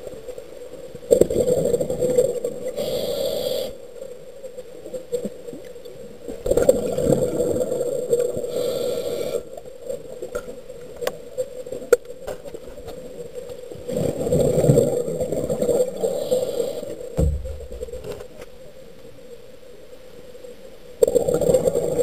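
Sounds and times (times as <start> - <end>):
diver breathing underwater: 2.7 - 3.8, 8.4 - 9.5, 15.6 - 18.1.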